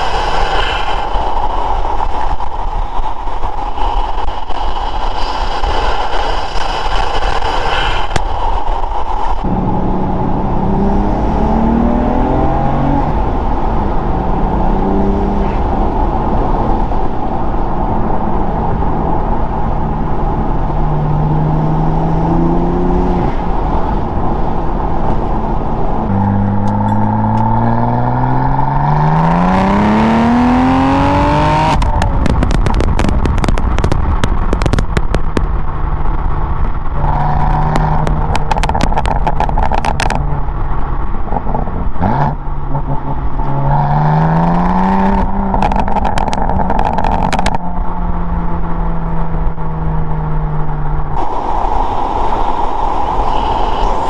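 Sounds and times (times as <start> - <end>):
car engine accelerating: 9.4 - 54.0
exhaust crackles: 18.7 - 44.0, 44.6 - 54.0.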